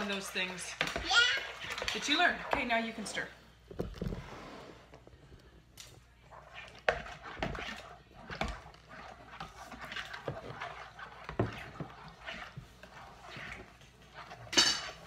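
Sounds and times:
spoon scraping dough in bowl: 0:06.1 - 0:15.0.

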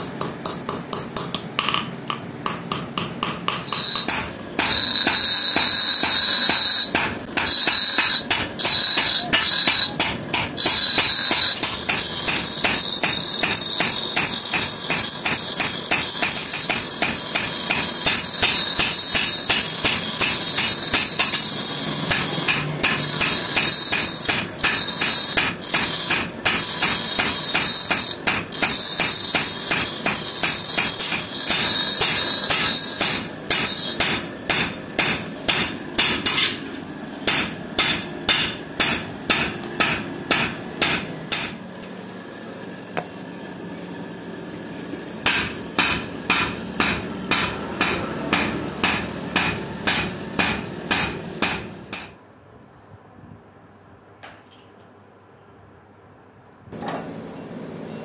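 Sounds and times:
hammer blows on metal: 0:00.0 - 0:36.6
bench grinder grinding steel: 0:03.5 - 0:34.3.

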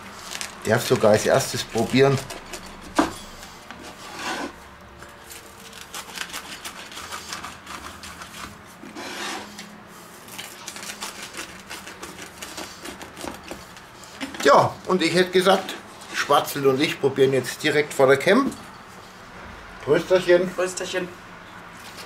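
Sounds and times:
pizza cutter crunching through crust: 0:00.0 - 0:14.6
cutter scraping wooden board: 0:03.8 - 0:04.6, 0:05.9 - 0:09.7.

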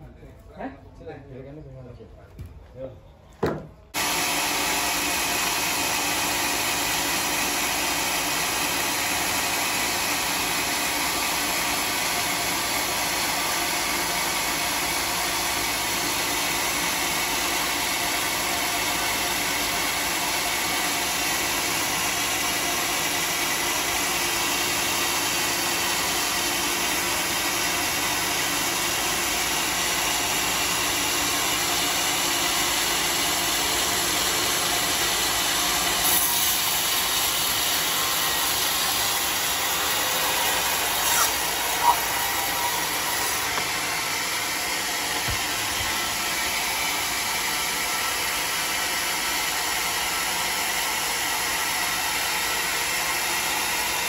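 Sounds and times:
sawmill humming and whining: 0:04.0 - 0:54.0.

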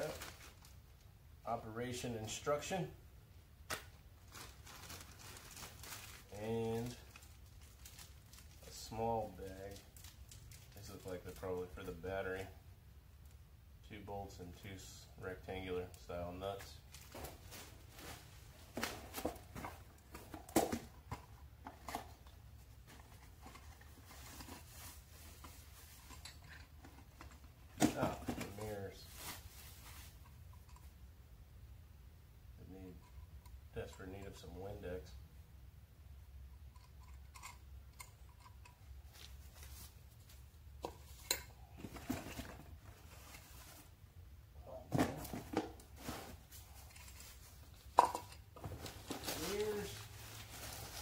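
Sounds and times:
packaging rustling and crinkling: 0:00.0 - 0:01.0, 0:04.2 - 0:11.4, 0:16.9 - 0:30.2, 0:41.0 - 0:44.0, 0:48.6 - 0:51.0.

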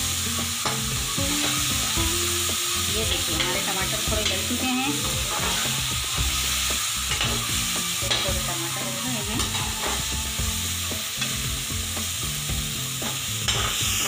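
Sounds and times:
tomatoes sizzling in oil: 0:00.0 - 0:14.0
metal spatula scraping pan: 0:04.2 - 0:05.9.

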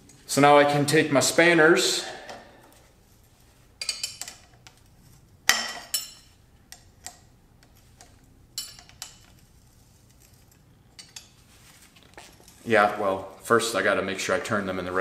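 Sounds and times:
spanner wrenches clinking on metal: 0:08.6 - 0:09.4.

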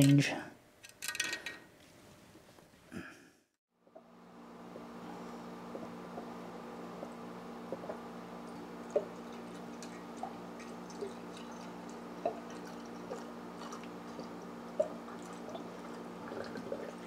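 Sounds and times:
small drips and plops: 0:07.7 - 0:17.0.

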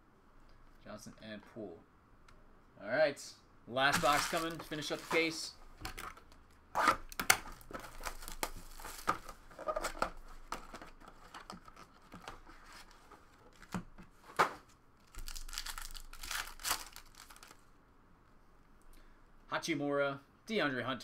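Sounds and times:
cardboard box tearing: 0:03.9 - 0:05.3
foil pack ripping: 0:03.9 - 0:05.3, 0:07.6 - 0:09.2, 0:15.1 - 0:17.6
foil wrappers crinkling: 0:03.9 - 0:06.3, 0:07.5 - 0:10.0, 0:15.0 - 0:17.7.

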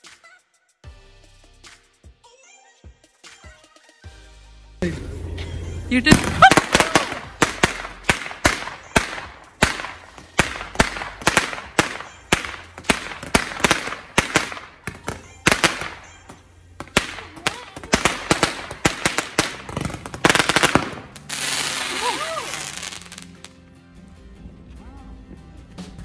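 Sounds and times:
firework bangs: 0:06.0 - 0:23.5.

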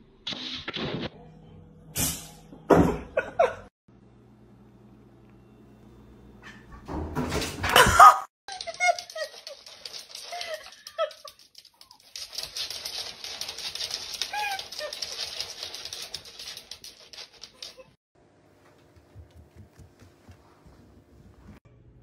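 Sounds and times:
dog claws clicking on wooden floor: 0:08.5 - 0:17.9, 0:18.8 - 0:20.5.

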